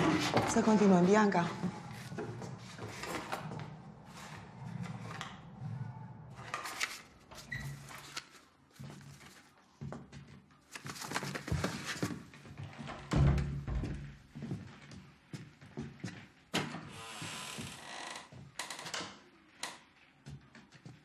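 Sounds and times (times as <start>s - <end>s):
book pages turning: 1.9s - 5.4s, 6.3s - 9.6s, 10.6s - 12.3s.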